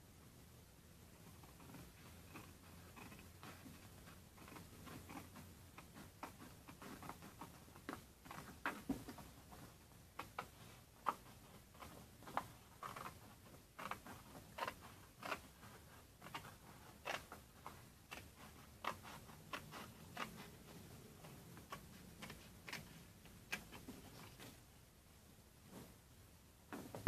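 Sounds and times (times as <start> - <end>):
scissors snipping paper: 10.2 - 23.9.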